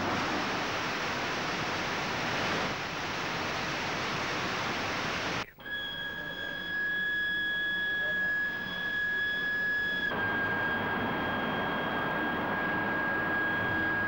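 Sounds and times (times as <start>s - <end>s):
high-pitched whine: 4.4s - 14.0s.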